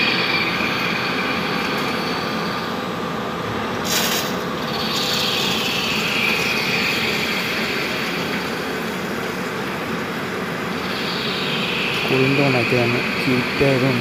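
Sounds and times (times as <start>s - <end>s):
lathe cutting and spindle noise: 0.0s - 14.0s
cutting whine falling in pitch: 4.2s - 14.0s.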